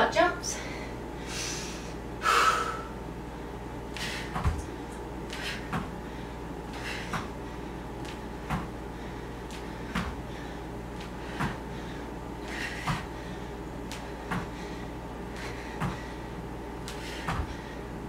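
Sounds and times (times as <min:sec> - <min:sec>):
feet thudding on a mat: 0:04.0 - 0:06.0, 0:06.7 - 0:07.4, 0:08.0 - 0:08.8, 0:09.4 - 0:11.8, 0:12.4 - 0:13.2, 0:13.8 - 0:14.7, 0:15.3 - 0:16.2, 0:16.8 - 0:17.7.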